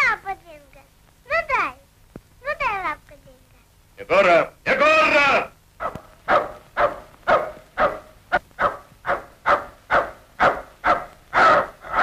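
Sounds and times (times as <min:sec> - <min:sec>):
dog barking: 0:05.8 - 0:12.0.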